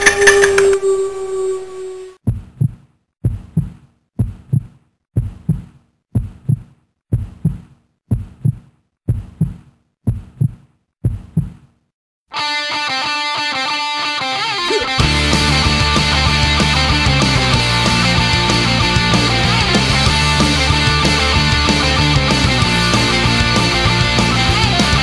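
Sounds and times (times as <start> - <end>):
held tone: 0.0 - 2.2
heartbeat thumps: 2.2 - 11.6
electric guitar rock music: 12.3 - 25.0.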